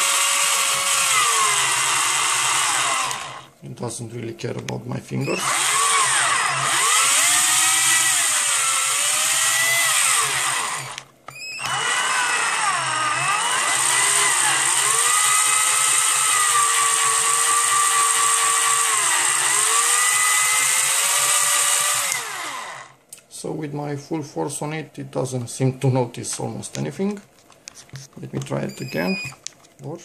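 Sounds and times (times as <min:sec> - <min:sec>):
electric drill motor whining: 0:00.0 - 0:03.5, 0:05.2 - 0:23.0.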